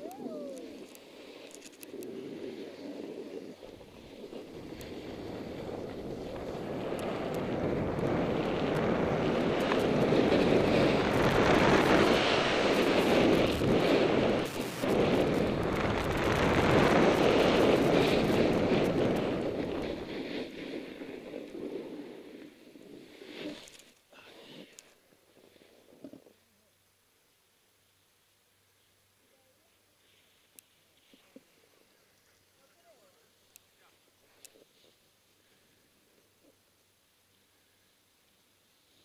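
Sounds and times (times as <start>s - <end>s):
snowboard scraping over snow: 0.0s - 24.6s
wind rushing over microphone: 1.8s - 23.6s.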